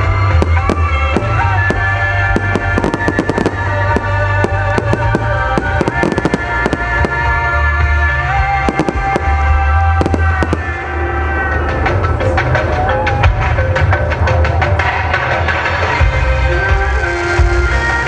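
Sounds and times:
fireworks bursting: 0.0s - 12.8s
loud music with heavy bass: 0.0s - 18.0s.

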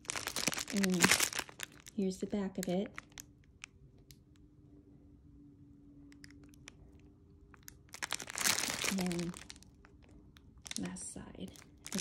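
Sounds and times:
plastic packets crinkling: 0.0s - 3.3s, 7.5s - 12.0s.

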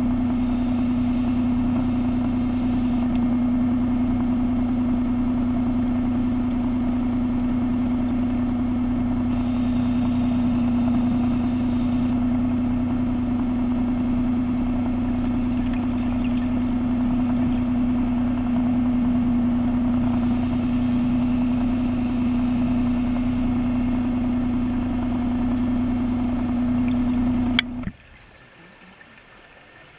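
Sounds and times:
underwater motor hum: 0.0s - 29.9s.

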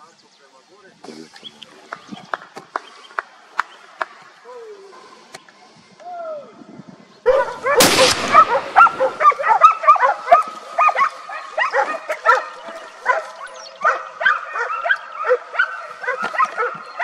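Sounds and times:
dogs yelping and barking: 7.3s - 17.0s.

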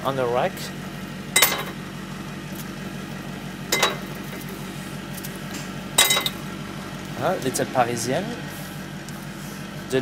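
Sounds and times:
low machine hum: 0.0s - 10.0s
metal tins clinking on rack: 3.8s - 4.1s, 6.0s - 6.4s.

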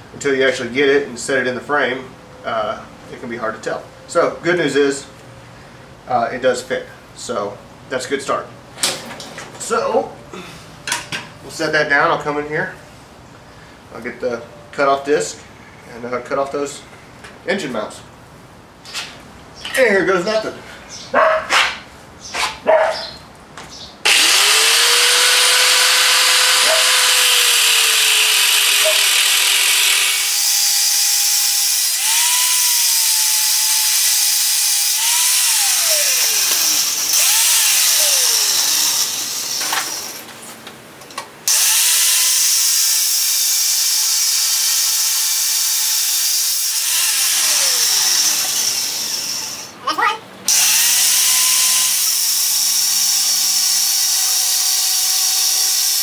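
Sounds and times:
angle grinder cutting steel: 24.1s - 40.2s, 41.5s - 49.8s, 50.5s - 56.0s.

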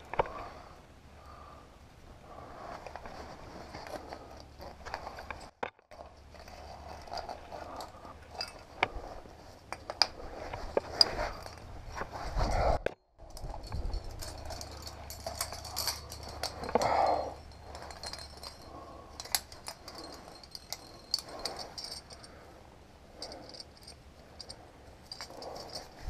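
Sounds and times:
sharp metal clinks: 13.2s - 22.5s, 23.2s - 26.0s.

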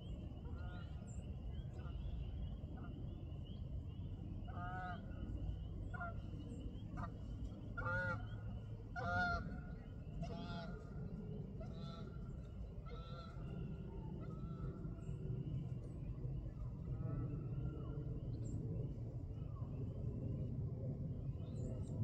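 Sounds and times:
low steady rumble: 0.0s - 22.0s
geese honking: 7.8s - 8.2s, 9.0s - 9.6s.

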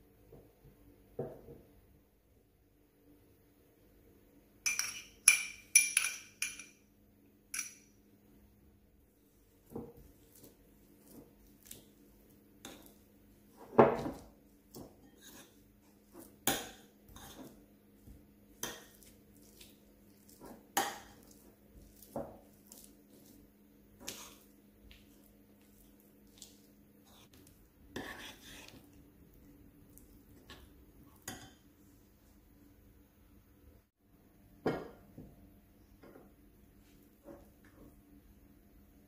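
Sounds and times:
metal spoon scraping ceramic bowl: 28.0s - 28.8s.

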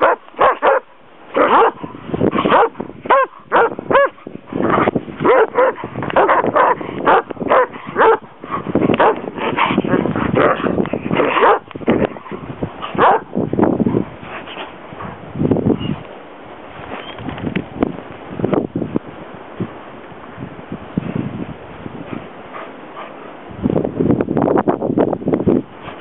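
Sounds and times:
dogs yelping: 0.0s - 0.8s, 2.4s - 12.2s
dogs barking: 0.0s - 13.4s.

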